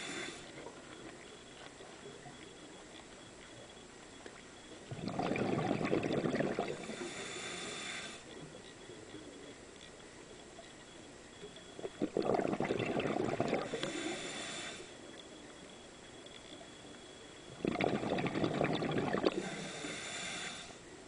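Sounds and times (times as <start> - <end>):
regulator hiss: 0.0 - 0.7, 6.8 - 8.4, 13.7 - 15.1, 19.1 - 20.9
exhaled bubbles underwater: 4.9 - 7.2, 11.8 - 14.2, 17.5 - 19.8.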